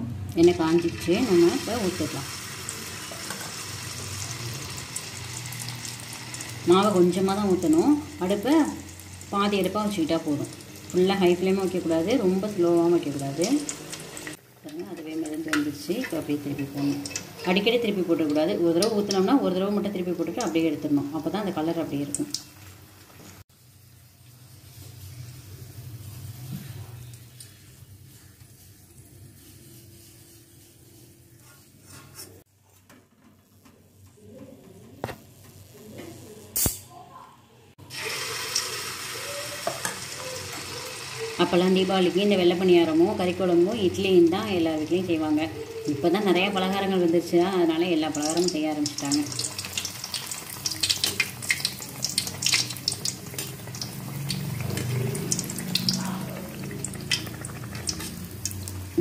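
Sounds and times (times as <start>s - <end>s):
batter deep-frying in hot oil: 0.0s - 32.5s, 37.8s - 59.0s.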